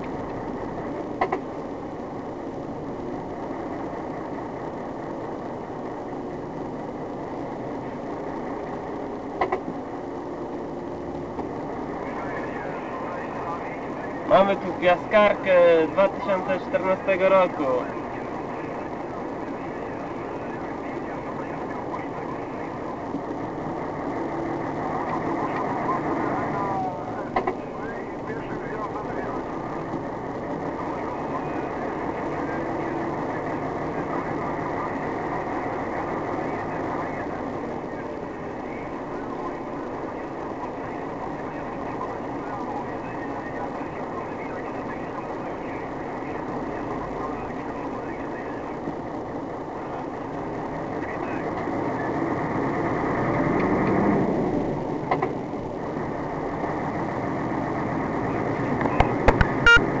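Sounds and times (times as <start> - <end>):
car road and engine noise: 0.0 - 60.0
short beep: 59.6 - 59.9.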